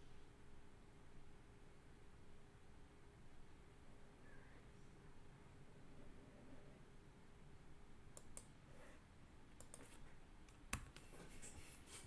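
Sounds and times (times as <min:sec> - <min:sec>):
keyboard and mouse clicks: 0:08.1 - 0:08.5, 0:09.6 - 0:11.6.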